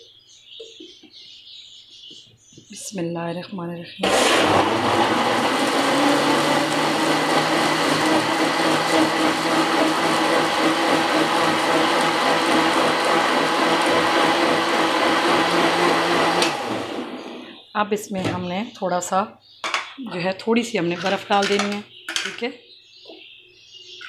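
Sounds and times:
blender running: 4.0s - 17.5s.

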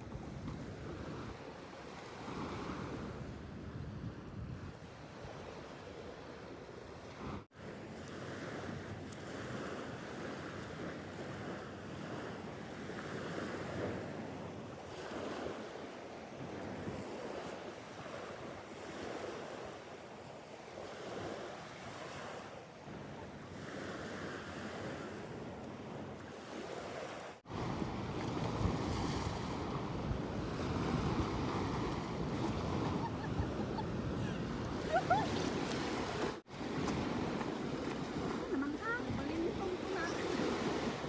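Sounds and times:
small waves on pebbly shore: 4.9s - 41.0s.

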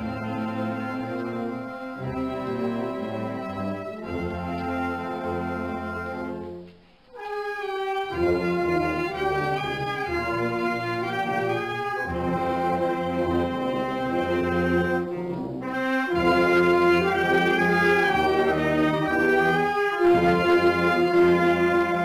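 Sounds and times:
marching brass band playing: 0.0s - 22.0s.

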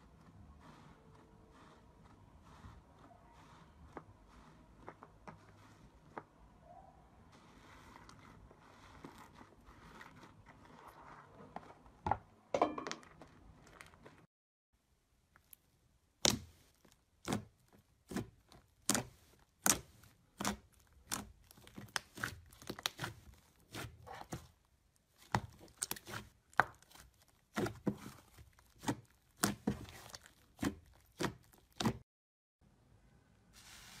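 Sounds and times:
slime popping and crackling: 16.2s - 24.2s, 25.1s - 32.0s.

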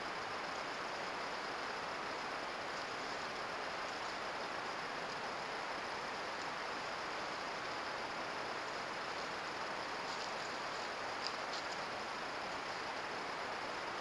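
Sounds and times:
microphone self-noise hiss: 0.0s - 14.0s
faint high ticks: 10.0s - 11.9s.

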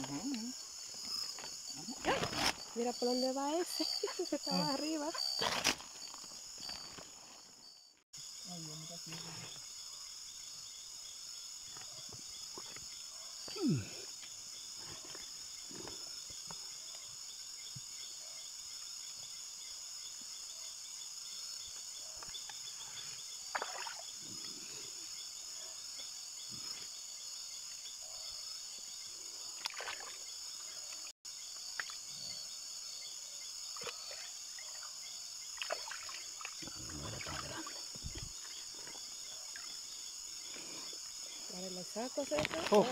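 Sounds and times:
night insects chirring: 0.0s - 42.9s
water splashes and scrapes: 29.6s - 30.3s, 35.6s - 39.0s.

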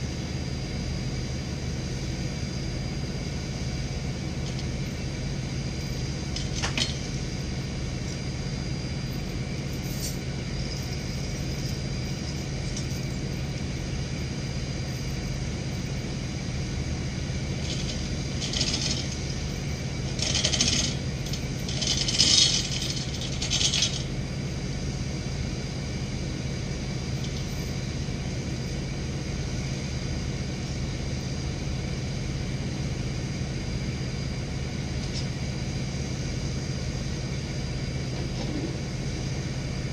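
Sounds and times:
truck engine running: 0.0s - 39.9s
metallic clatter: 17.6s - 19.2s, 20.2s - 24.1s.

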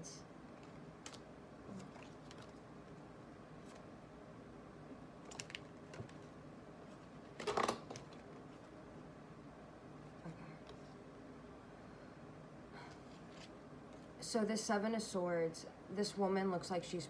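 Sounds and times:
cards being shuffled: 0.6s - 3.0s.

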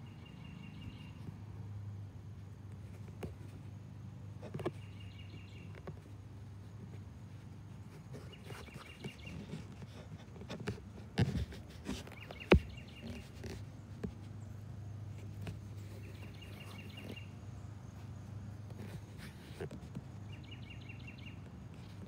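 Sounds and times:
steady low street hum: 0.0s - 22.0s
faint bird chirps: 15.7s - 18.1s.

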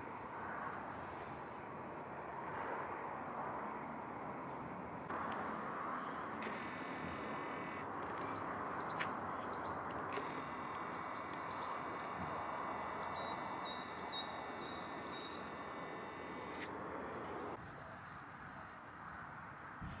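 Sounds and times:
steady background rush: 5.0s - 17.6s
small birds chirping: 6.0s - 17.6s.

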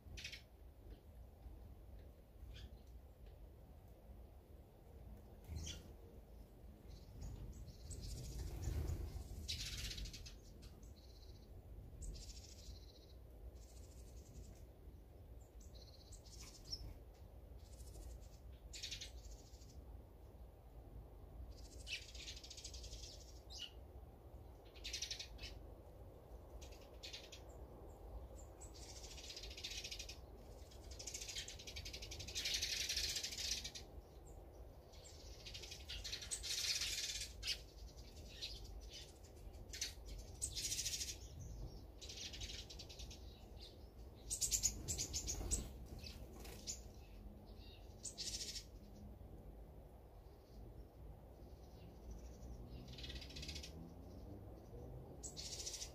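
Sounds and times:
songbirds chirping: 0.0s - 55.9s
harsh bird calls: 51.6s - 55.9s.

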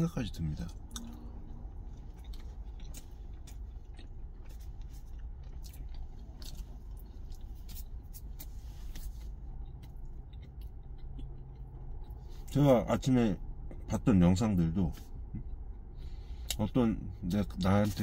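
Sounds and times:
low rumble in truck cab: 0.0s - 18.0s
man chewing sandwich: 0.7s - 12.6s, 14.9s - 16.6s.

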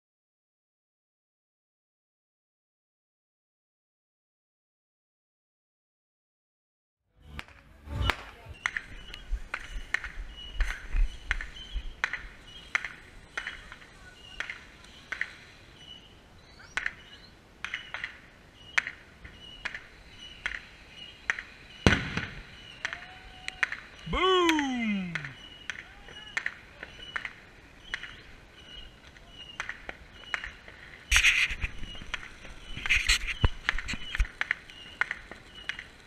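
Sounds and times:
fireworks popping and cracking: 7.3s - 15.7s, 16.7s - 36.0s.

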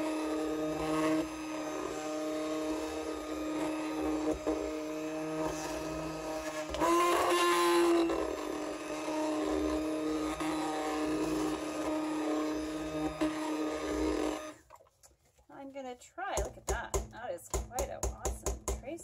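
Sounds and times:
stick blender running: 0.0s - 14.6s.

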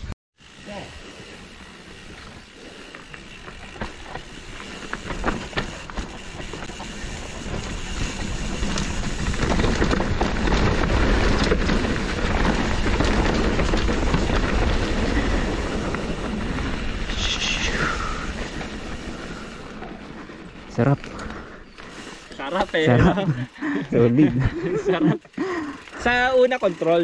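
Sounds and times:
tyres rushing on loose dirt: 0.5s - 27.0s
bike knocks and rattles: 3.3s - 16.6s.

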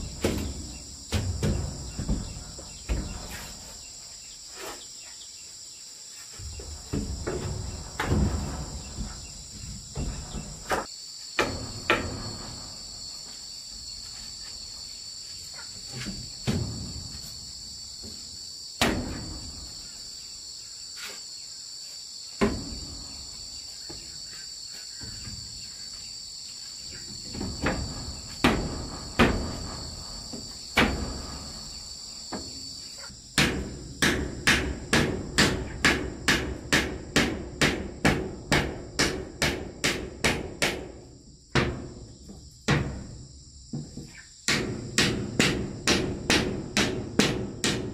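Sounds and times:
insect chirring: 0.0s - 34.1s.

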